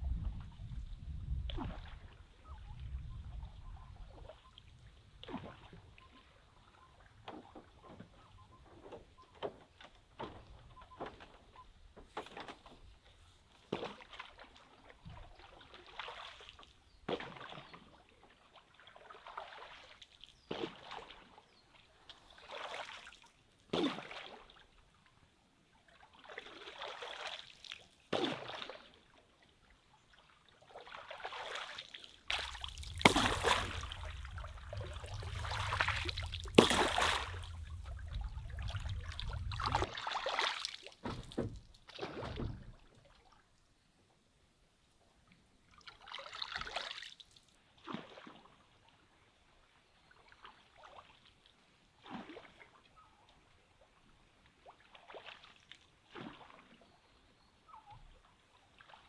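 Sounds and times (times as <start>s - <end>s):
water sloshing off a pole: 5.2s - 21.4s, 30.1s - 43.3s, 54.5s - 56.8s
low rumble: 33.1s - 39.9s.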